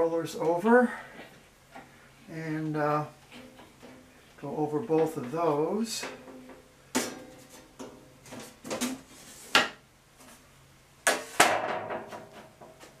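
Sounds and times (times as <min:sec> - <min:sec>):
metal knocks and clanks: 0:11.4 - 0:13.0.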